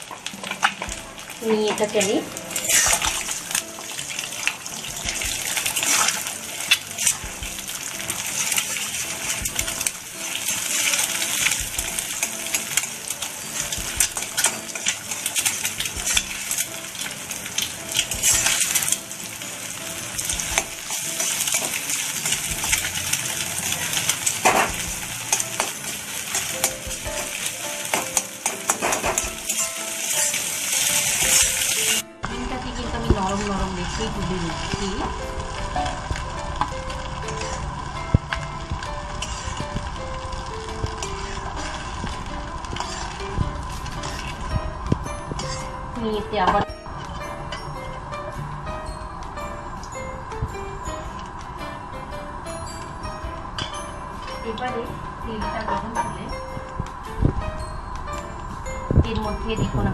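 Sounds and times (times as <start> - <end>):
eggs sizzling in hot oil: 0.0 - 59.9
metal spatula scraping pan: 39.1 - 39.8, 40.8 - 44.5, 45.3 - 45.9.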